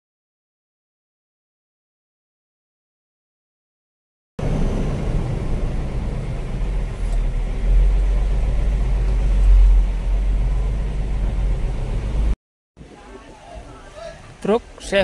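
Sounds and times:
truck engine rumbling: 0:04.4 - 0:13.0.

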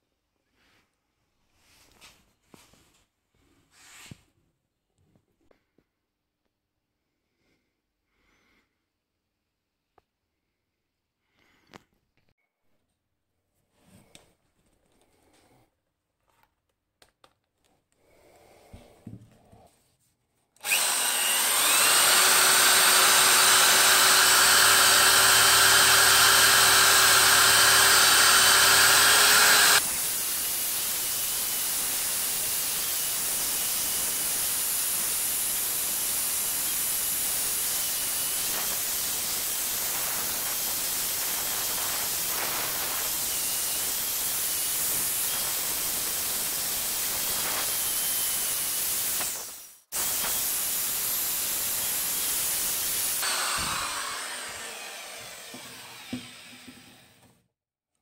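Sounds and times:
angle grinder wire brushing metal: 0:20.7 - 0:30.2, 0:35.6 - 0:52.0.

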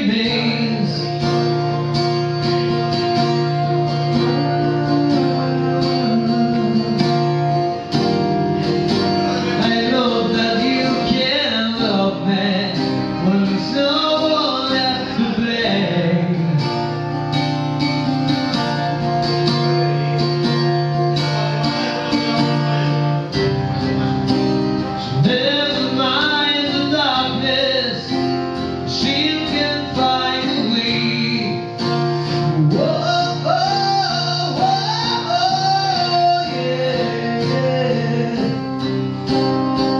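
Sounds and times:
man singing: 0:00.0 - 0:18.1, 0:19.0 - 0:39.9
strummed acoustic guitar: 0:00.0 - 0:39.9.

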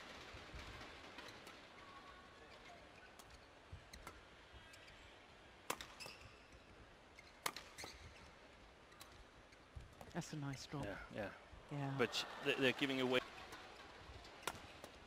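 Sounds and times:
badminton rackets hitting shuttlecock: 0:05.7 - 0:06.3, 0:07.4 - 0:08.0, 0:14.4 - 0:14.9.

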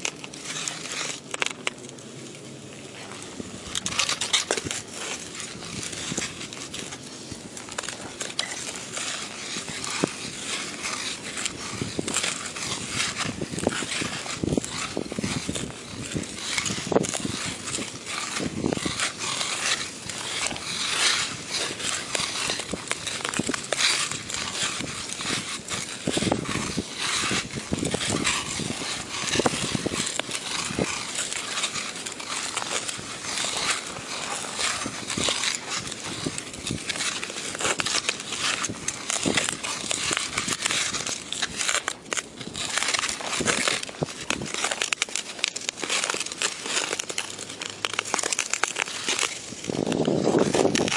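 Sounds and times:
skate blades scraping on ice: 0:00.0 - 0:50.9.

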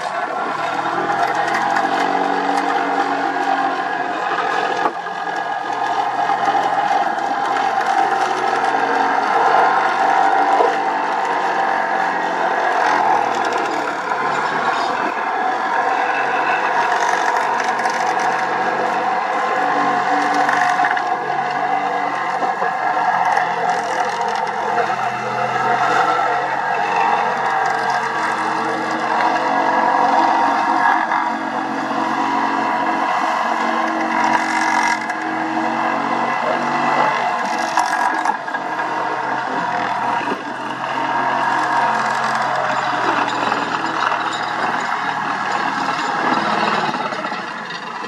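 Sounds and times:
excavator engine: 0:00.0 - 0:48.0
vibratory pile hammer drone: 0:00.0 - 0:48.0.

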